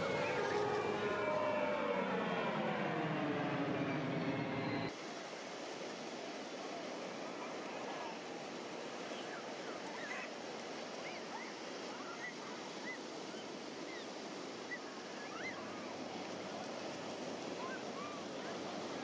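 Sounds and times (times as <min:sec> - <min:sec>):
surf washing: 0:04.9 - 0:19.0
faint murmur of voices: 0:14.7 - 0:19.0.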